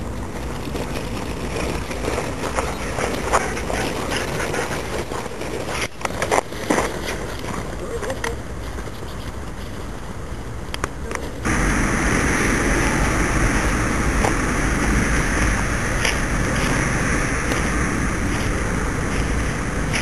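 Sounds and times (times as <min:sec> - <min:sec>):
low rumble: 0:11.4 - 0:20.0
wind buffeting microphone: 0:11.4 - 0:20.0.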